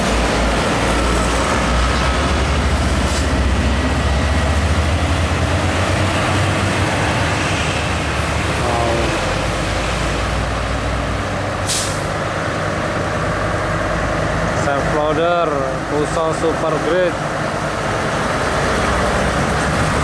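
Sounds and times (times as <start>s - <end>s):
engine drone of passing vehicles: 0.0s - 20.0s
short sharp hiss: 11.6s - 12.1s.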